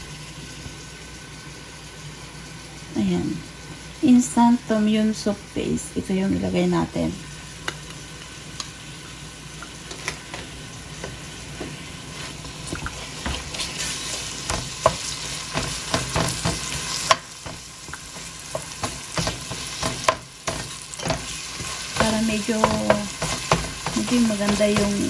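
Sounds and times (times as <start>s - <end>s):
onions sizzling in oil: 0.0s - 25.0s
wooden spoon scraping pan: 11.0s - 25.0s.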